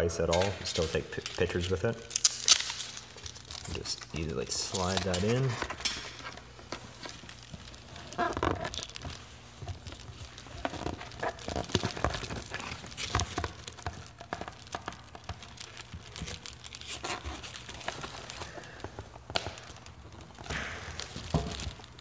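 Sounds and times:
nylon case rustling and scraping: 2.5 - 22.0.

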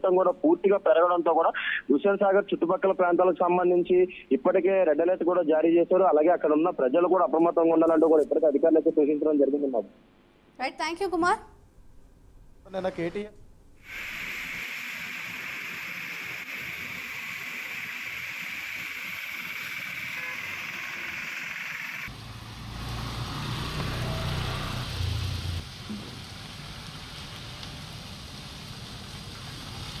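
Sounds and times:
rain hissing: 13.8 - 30.0
tyres on wet road: 13.9 - 30.0
vehicle engine rumbling: 22.1 - 30.0.

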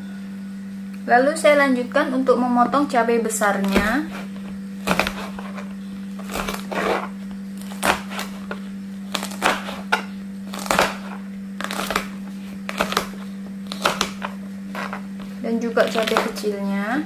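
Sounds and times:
steady low hum: 0.0 - 17.0
knife chopping on plastic board: 3.6 - 16.5.

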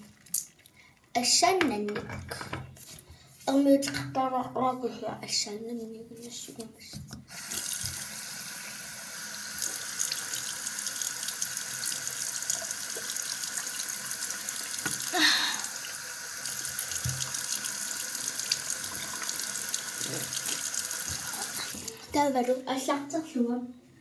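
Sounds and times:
tap water pouring into basin: 7.3 - 22.2.

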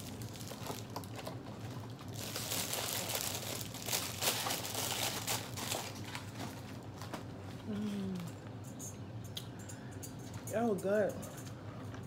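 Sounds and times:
plastic wrapper crinkling: 0.0 - 7.1.

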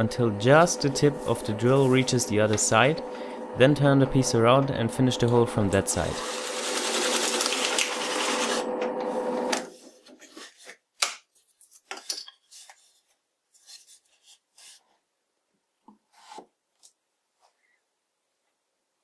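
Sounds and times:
drill press motor hum: 0.1 - 9.6.

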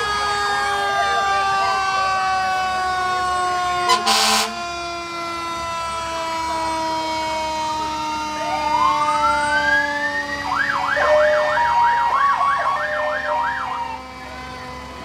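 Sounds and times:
steady siren tone: 0.0 - 15.0
electronic siren wailing and yelping: 8.0 - 14.9.

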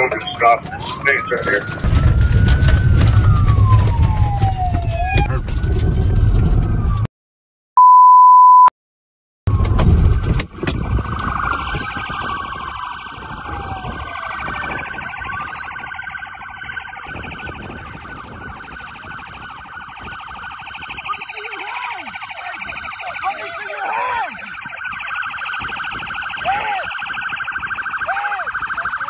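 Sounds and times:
police siren wailing: 0.0 - 7.1, 9.5 - 29.0
rumble: 1.7 - 7.1, 9.5 - 11.7
electronic beep: 7.8 - 8.7.

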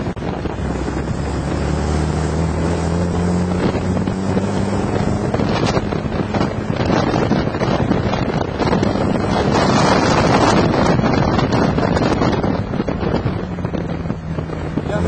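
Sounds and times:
vehicle engine running: 0.0 - 15.0
wind buffeting microphone: 0.0 - 15.0.

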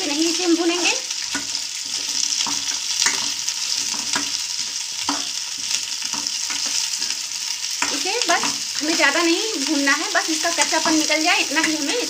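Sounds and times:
vegetables sizzling in oil: 0.0 - 12.0
steel spoon scraping a pan: 1.3 - 9.2.

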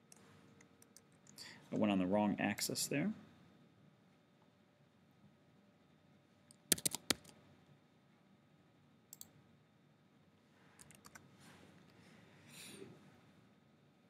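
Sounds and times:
mouse and keyboard clicks: 6.7 - 7.3.

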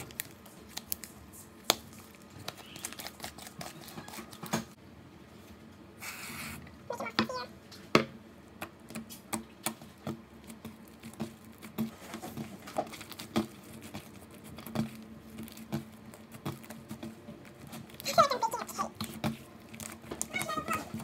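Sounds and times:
slime kneaded by hand: 8.6 - 21.0.

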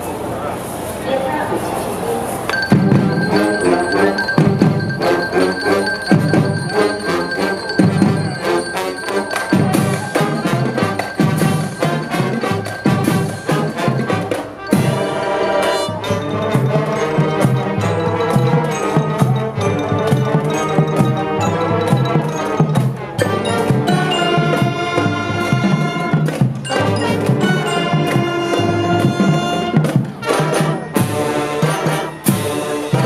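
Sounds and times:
marching band playing: 2.0 - 33.0
drum hits: 2.5 - 8.7.

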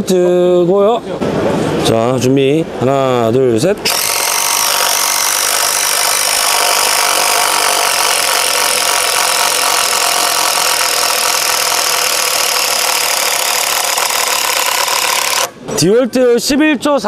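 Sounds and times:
impact driver hammering: 3.8 - 15.6.

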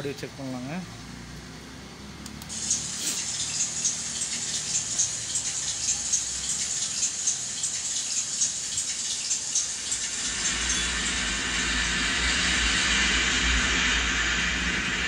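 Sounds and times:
high hi-hat ticks: 2.2 - 15.0
hiss: 2.4 - 15.0.

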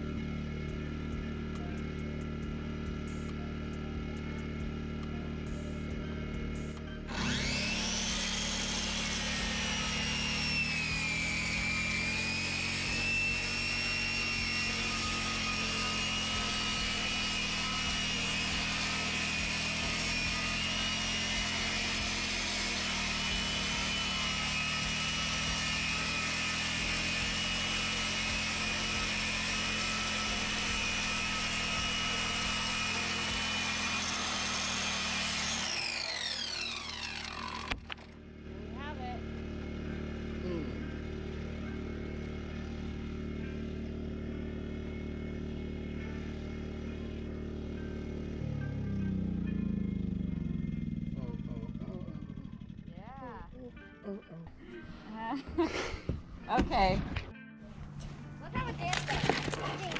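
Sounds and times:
circular saw cutting: 6.6 - 38.1.

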